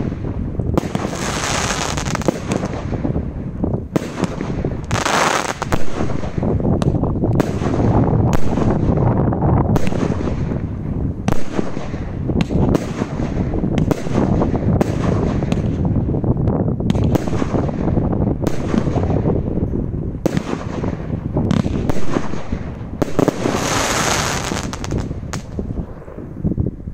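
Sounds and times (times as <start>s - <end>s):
rising firework hiss: 4.9s - 5.8s, 23.2s - 26.2s.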